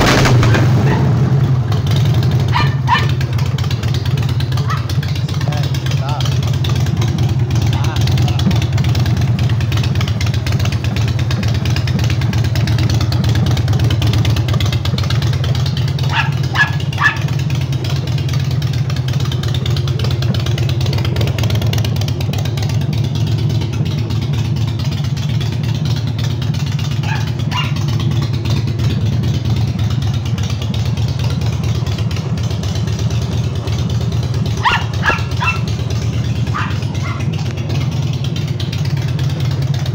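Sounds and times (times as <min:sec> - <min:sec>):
motorcycle engine idling: 0:00.0 - 0:39.9
dog barking: 0:00.5 - 0:01.1, 0:02.5 - 0:03.3, 0:04.6 - 0:05.0, 0:16.0 - 0:17.4, 0:27.0 - 0:27.9, 0:34.5 - 0:35.8, 0:36.4 - 0:37.4.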